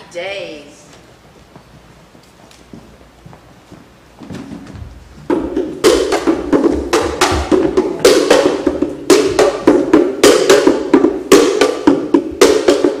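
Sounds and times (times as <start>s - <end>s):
box drum slapped by hand: 4.9s - 13.0s.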